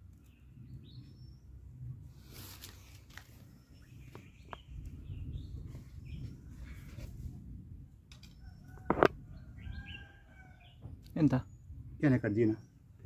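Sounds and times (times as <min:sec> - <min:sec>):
small birds chirping: 0:00.0 - 0:07.1, 0:08.1 - 0:13.0
dry palm leaf rustling: 0:02.1 - 0:04.2.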